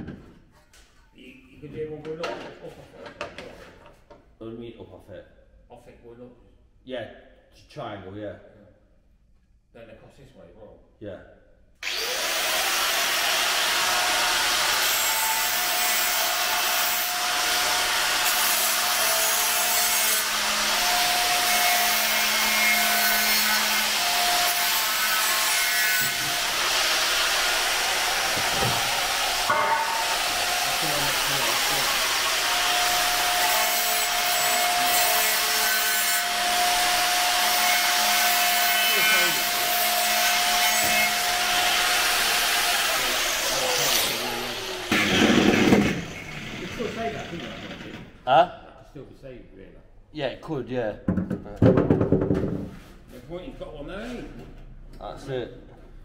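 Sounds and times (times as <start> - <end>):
angle grinder grinding steel: 11.8 - 48.0.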